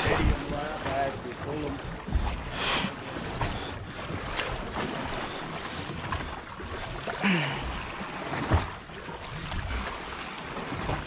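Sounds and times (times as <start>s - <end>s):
wind buffeting microphone: 0.0s - 6.3s
water slapping against boat hull: 0.0s - 11.0s.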